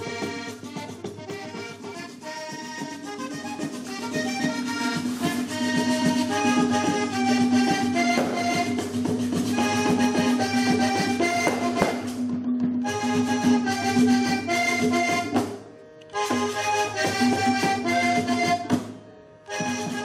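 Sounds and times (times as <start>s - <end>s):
hand-played drum: 0.0s - 15.6s, 16.2s - 20.0s
stick-played drum beat: 0.0s - 15.6s
button accordion melody: 0.0s - 20.0s.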